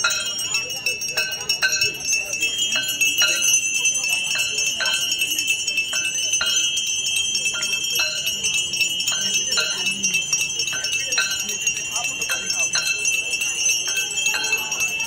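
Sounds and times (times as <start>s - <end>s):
bells ringing: 0.0s - 15.0s.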